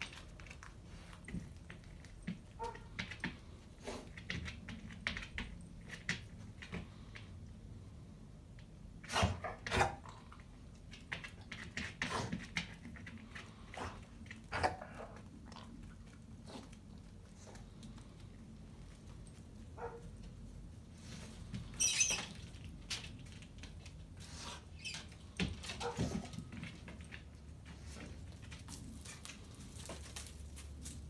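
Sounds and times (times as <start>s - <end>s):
dog sniffing: 3.6s - 4.3s.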